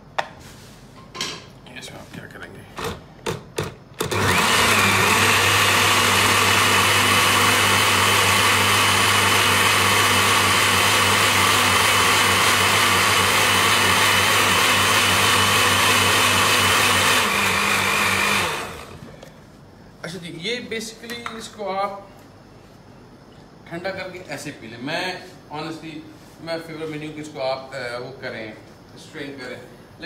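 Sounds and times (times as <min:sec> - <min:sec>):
blender motor running: 0:04.0 - 0:19.0.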